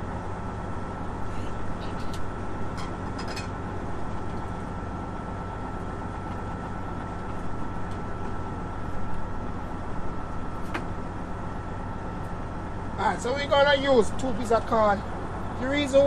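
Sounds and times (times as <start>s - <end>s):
thin steady whine: 0.0s - 16.0s.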